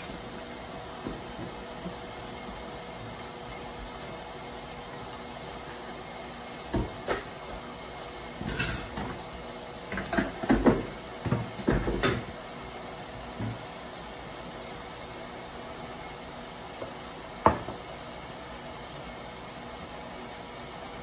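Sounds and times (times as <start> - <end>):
kitchenware clinking and knocking: 8.4 - 9.2.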